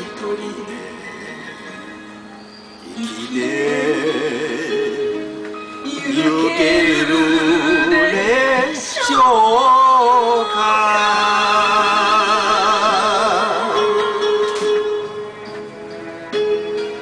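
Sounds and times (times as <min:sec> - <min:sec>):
karaoke backing track: 0:00.0 - 0:17.0
man singing into microphone: 0:02.9 - 0:14.6.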